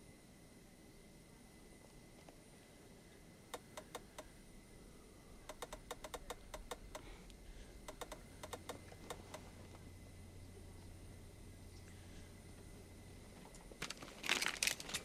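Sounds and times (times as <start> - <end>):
small clicks: 3.5 - 4.4, 5.5 - 7.2, 7.8 - 9.5.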